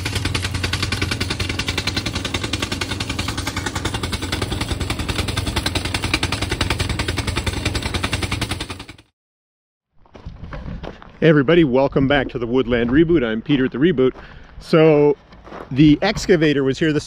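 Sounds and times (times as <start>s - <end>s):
rock drill hammering: 0.0s - 9.0s
steady low drone: 0.0s - 9.0s.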